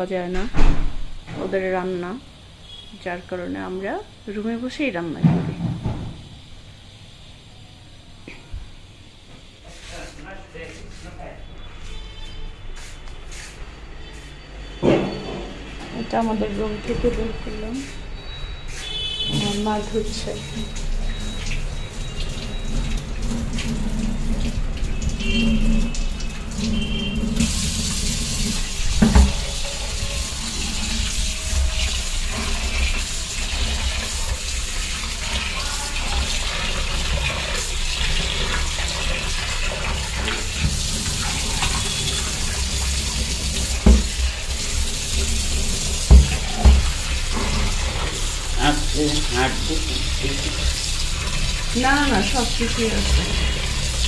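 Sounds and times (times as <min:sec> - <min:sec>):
tap running into sink: 0:20.5 - 0:54.0.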